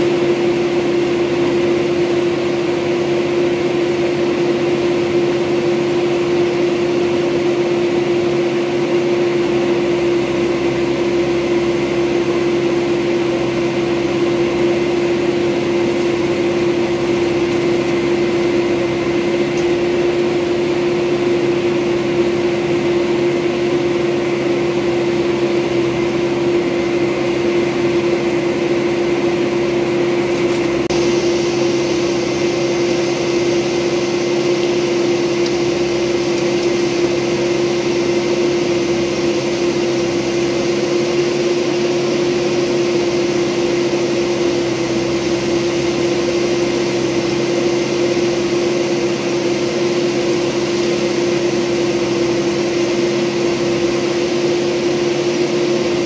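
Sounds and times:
diesel engine idling: 0.0 - 40.8.

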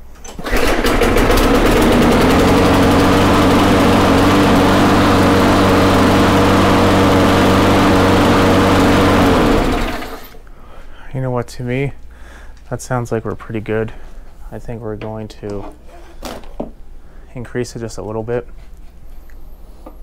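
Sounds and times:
lawn mower engine running: 0.2 - 10.4.

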